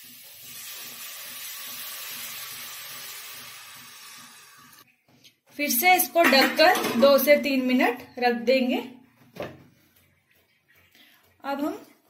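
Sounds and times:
water hissing in hot pan: 0.0 - 4.8
water pouring: 0.0 - 4.8.

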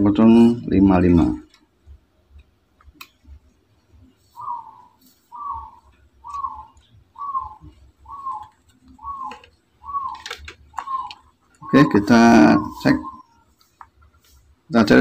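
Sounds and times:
bird calling: 3.3 - 15.0.

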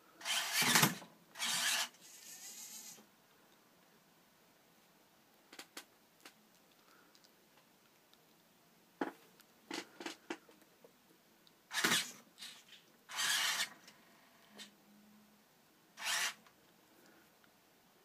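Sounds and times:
servo motors whirring: 1.4 - 3.0, 13.1 - 13.7, 16.0 - 16.4.

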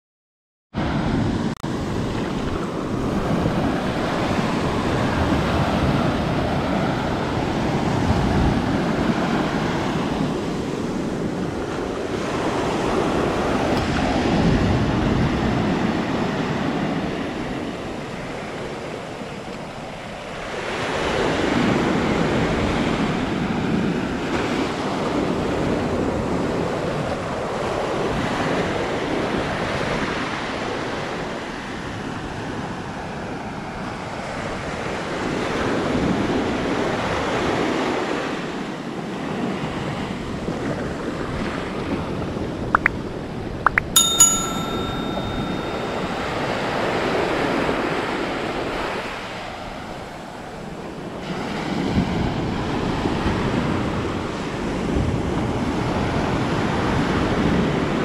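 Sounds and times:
wind on the microphone: 0.8 - 18.0.

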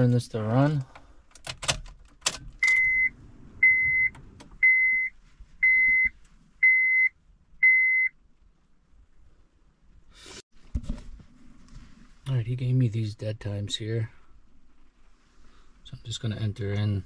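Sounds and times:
dashboard warning beeps: 2.6 - 8.1.

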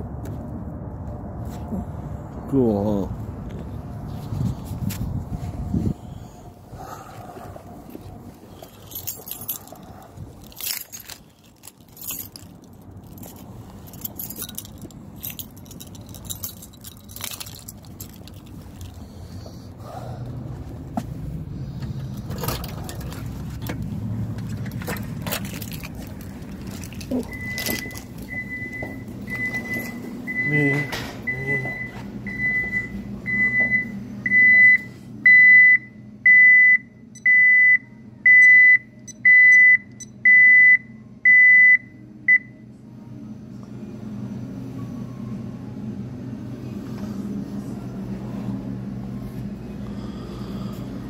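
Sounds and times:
alarm keypad beeping: 27.3 - 42.5.

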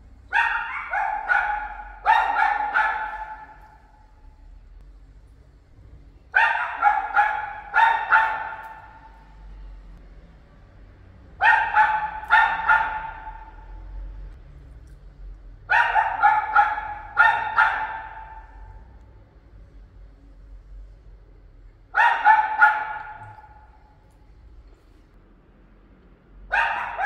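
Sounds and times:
dog barking: 0.3 - 4.2, 6.3 - 9.6, 11.4 - 14.0, 15.6 - 19.0, 21.9 - 24.0, 26.5 - 27.0.

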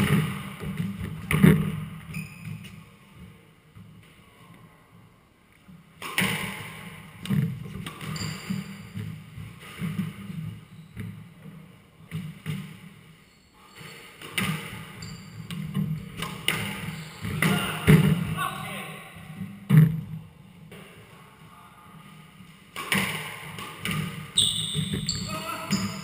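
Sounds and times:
shoes squeaking on wooden floor: 1.2 - 2.9, 7.7 - 11.4, 13.2 - 18.1, 23.8 - 26.0
squash ball hits: 6.0 - 11.1, 14.2 - 18.4, 22.7 - 26.0.

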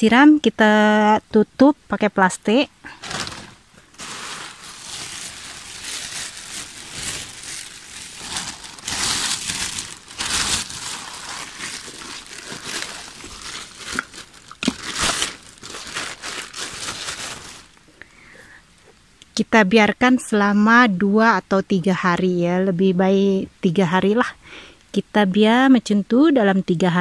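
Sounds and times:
plastic sheet crinkling: 2.9 - 17.8.

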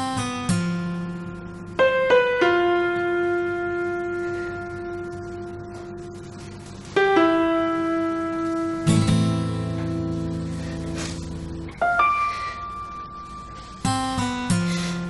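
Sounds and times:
slow instrumental music: 0.0 - 15.0.

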